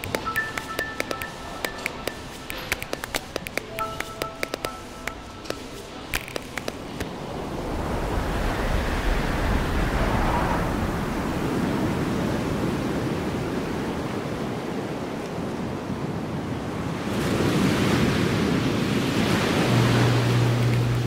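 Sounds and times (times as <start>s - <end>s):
light taps: 0.0s - 7.1s
wind: 0.0s - 21.0s
sea surf on rocky shore: 6.9s - 21.0s.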